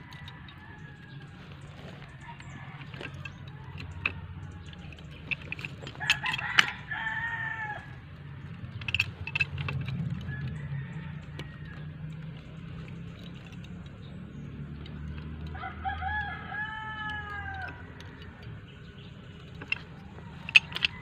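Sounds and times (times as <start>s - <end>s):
rooster crowing: 0.0s - 9.0s, 9.9s - 13.4s, 15.4s - 18.6s.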